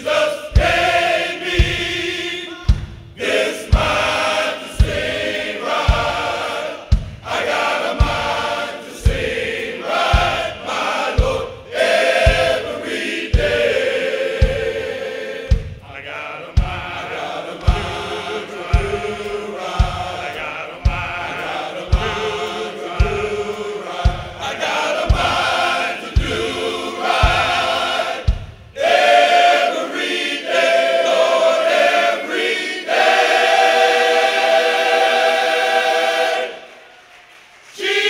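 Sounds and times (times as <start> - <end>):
low beat: 0.0 - 29.6
men's choir singing: 0.0 - 37.1, 37.7 - 38.0.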